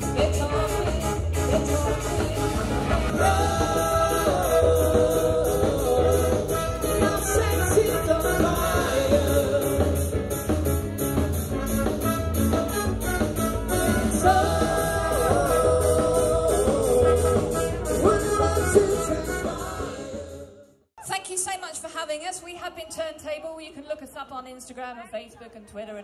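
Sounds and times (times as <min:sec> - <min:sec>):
woman singing: 0:00.0 - 0:09.9
drum kit beat: 0:00.0 - 0:20.4
bass guitar: 0:00.0 - 0:20.5.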